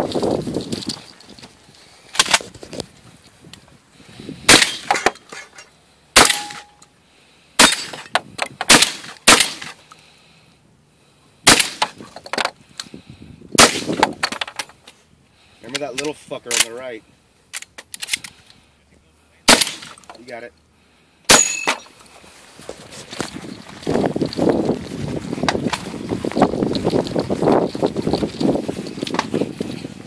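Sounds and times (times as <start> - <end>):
gun clicks and clacks: 2.1 - 2.8, 15.7 - 16.8, 17.5 - 18.4
shotgun shots: 4.5 - 5.0, 6.2 - 6.7, 7.6 - 8.0, 8.7 - 9.8, 11.4 - 12.0, 13.6 - 14.1, 19.5 - 20.0.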